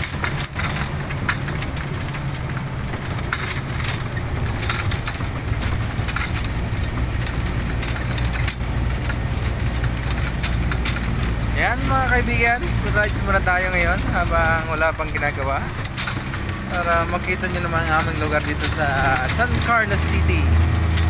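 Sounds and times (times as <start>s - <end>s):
short clicks and knocks: 0.0s - 21.0s
vehicle drone and road rumble: 0.0s - 21.0s.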